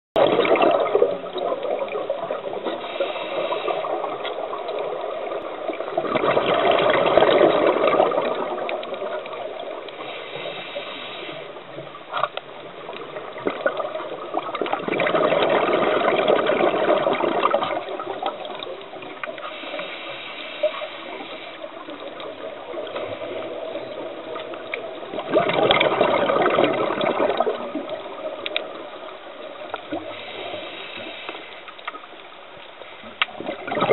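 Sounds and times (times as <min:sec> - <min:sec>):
exhaled bubbles underwater: 0:00.2 - 0:32.3, 0:33.0 - 0:33.9
hissing breaths: 0:02.7 - 0:04.1, 0:09.9 - 0:11.6, 0:19.4 - 0:21.9, 0:30.1 - 0:31.8.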